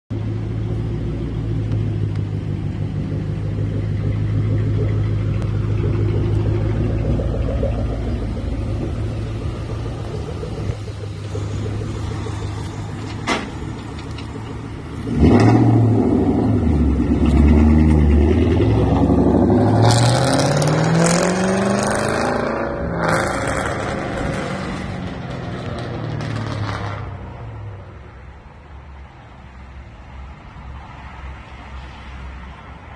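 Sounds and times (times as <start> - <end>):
car engine rumbling and revving: 0.1 - 29.2.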